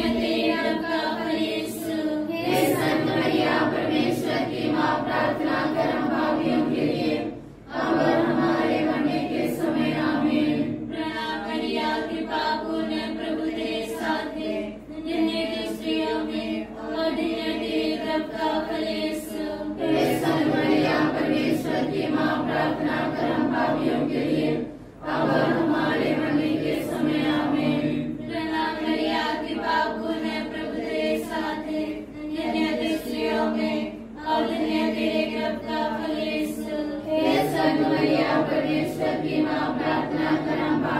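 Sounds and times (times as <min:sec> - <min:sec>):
group singing a hymn: 0:00.0 - 0:40.9.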